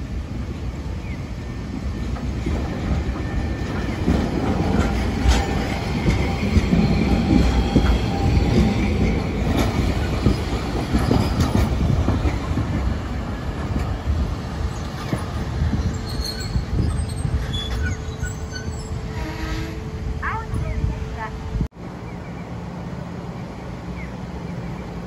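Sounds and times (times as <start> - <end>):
tram wheels rumbling: 0.0 - 25.0
wheels clicking over rail joints: 2.0 - 18.0.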